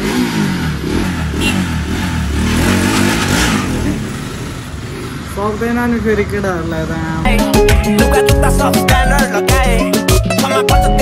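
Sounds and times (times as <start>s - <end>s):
vehicle engine revving: 0.0s - 7.2s.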